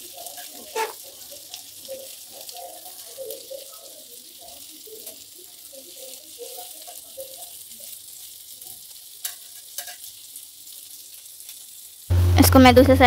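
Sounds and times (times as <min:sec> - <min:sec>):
fish sizzling in hot oil: 0:00.0 - 0:12.4
spatula knocking pan: 0:00.2 - 0:01.1.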